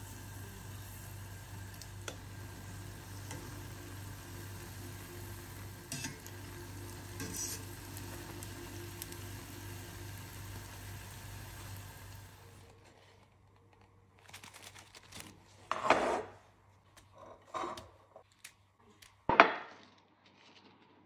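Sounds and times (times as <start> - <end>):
deep-frying oil sizzling: 0.0 - 12.6
wire skimmer clinking on pan: 5.9 - 6.5.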